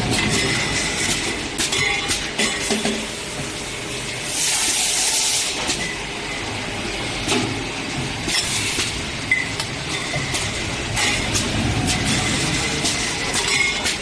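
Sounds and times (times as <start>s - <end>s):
machinery mechanical din: 0.0s - 3.1s, 7.3s - 14.0s.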